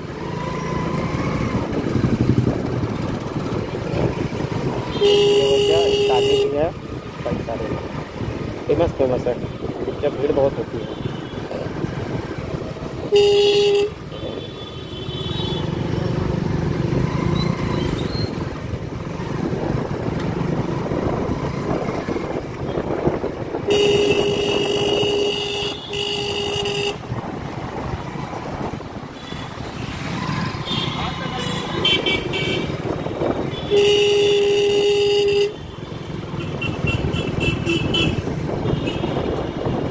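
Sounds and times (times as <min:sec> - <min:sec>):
motorcycle engine: 0:00.0 - 0:39.9
road noise: 0:00.0 - 0:39.9
vehicle horn honking: 0:04.8 - 0:06.6, 0:13.0 - 0:15.7, 0:23.7 - 0:27.0, 0:30.7 - 0:32.8, 0:33.5 - 0:35.8, 0:36.4 - 0:39.8.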